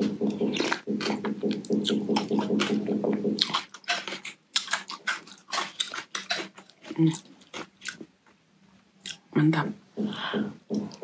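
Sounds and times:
low hum: 0.0 - 3.4
wet chewing and lip-smacking: 0.0 - 8.1.

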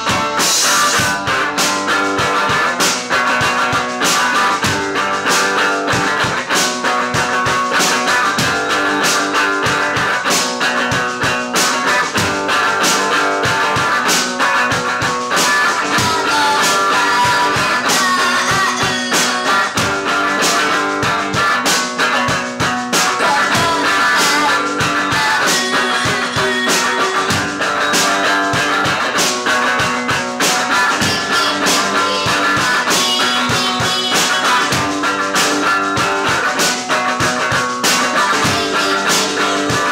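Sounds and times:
rock band with electric guitar: 0.0 - 39.9.

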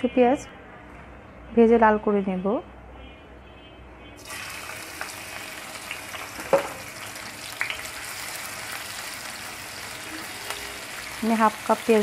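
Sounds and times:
onions sizzling in hot oil: 4.2 - 12.0.

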